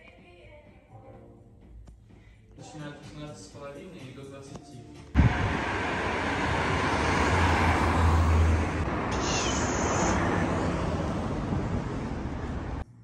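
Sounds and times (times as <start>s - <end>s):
car driving past: 5.2s - 12.8s.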